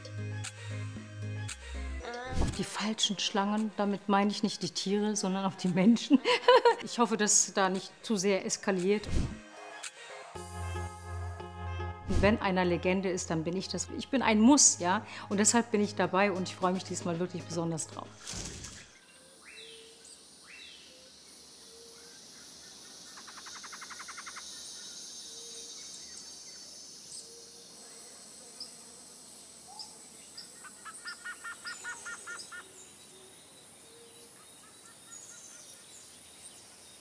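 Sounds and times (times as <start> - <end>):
high insect hiss: 18.1 - 37.0.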